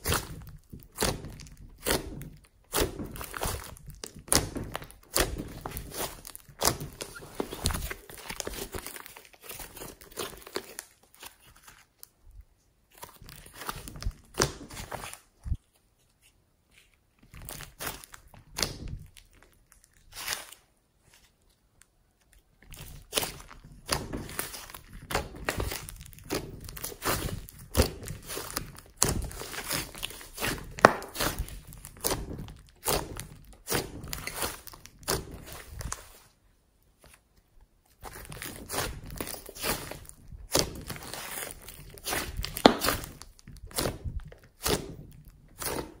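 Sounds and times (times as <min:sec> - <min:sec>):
slime wet pops and crackles: 0:22.3 - 0:36.0, 0:38.1 - 0:46.0.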